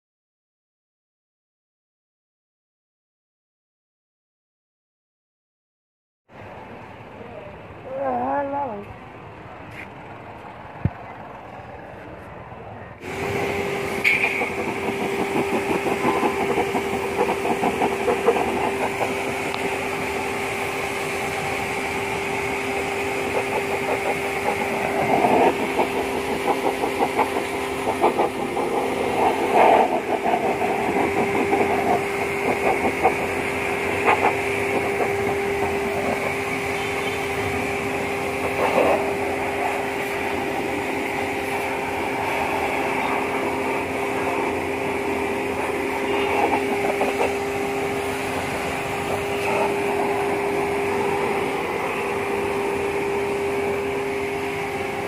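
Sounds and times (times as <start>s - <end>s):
pressure washer motor hum: 13.0s - 55.0s.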